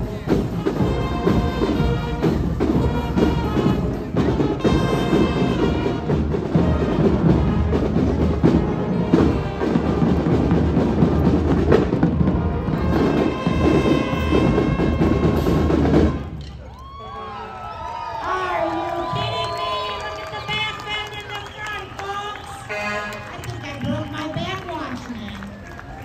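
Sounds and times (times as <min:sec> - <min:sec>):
marching band playing: 0:00.0 - 0:26.0.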